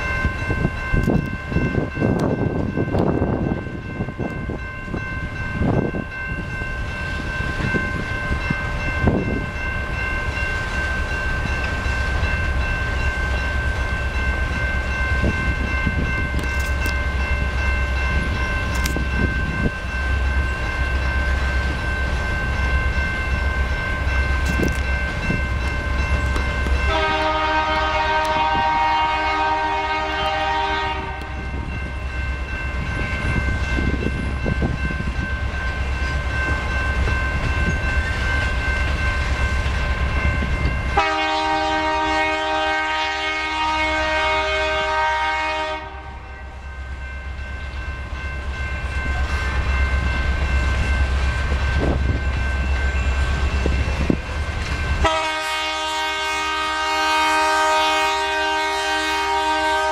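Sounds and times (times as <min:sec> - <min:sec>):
freight train rumbling past: 0:00.0 - 0:59.9
locomotive air horn: 0:26.9 - 0:31.4, 0:41.0 - 0:46.2, 0:55.0 - 0:59.9.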